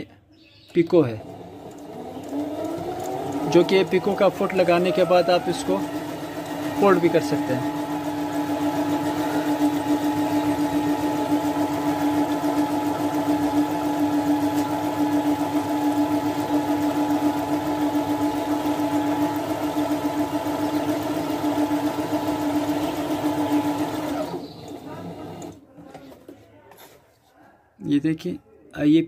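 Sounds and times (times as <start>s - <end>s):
sewing machine running: 0.8s - 25.6s.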